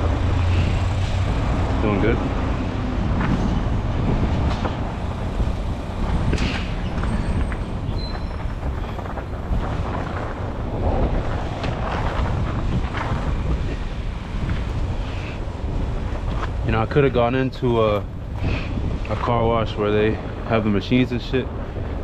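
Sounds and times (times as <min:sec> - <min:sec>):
car wash rumble and hiss: 0:00.0 - 0:22.0
wind buffeting microphone: 0:00.0 - 0:22.0
knocks and scrapes: 0:03.0 - 0:19.6.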